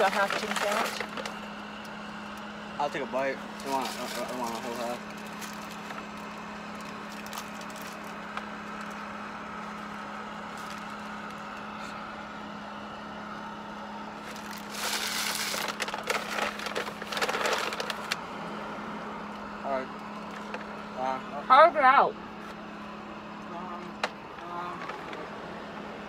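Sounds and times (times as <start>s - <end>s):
paper packaging crinkling: 0.0s - 1.5s, 3.5s - 8.2s, 14.2s - 18.2s
car interior hum: 0.0s - 26.0s.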